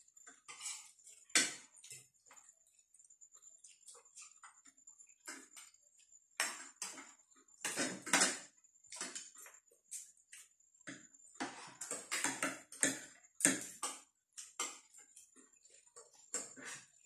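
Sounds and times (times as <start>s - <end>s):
cutlery scraping on plates: 0.2s - 2.4s, 6.4s - 17.0s.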